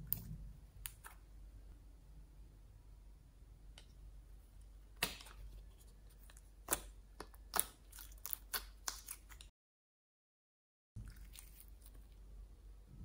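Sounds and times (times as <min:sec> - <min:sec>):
sticky slime crackles: 0:06.2 - 0:09.5.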